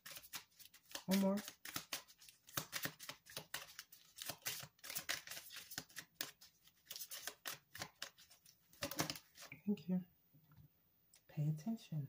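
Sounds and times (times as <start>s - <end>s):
cards being shuffled: 0.0s - 9.5s.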